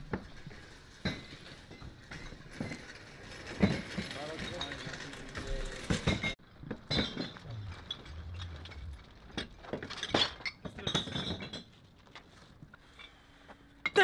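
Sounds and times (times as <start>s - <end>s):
glass bottles clinking: 3.4s - 7.9s, 9.7s - 11.8s.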